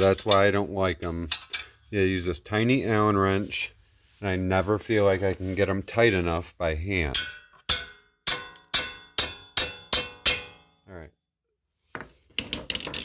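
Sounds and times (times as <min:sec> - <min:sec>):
hammer striking metal wrench: 0:07.1 - 0:10.8.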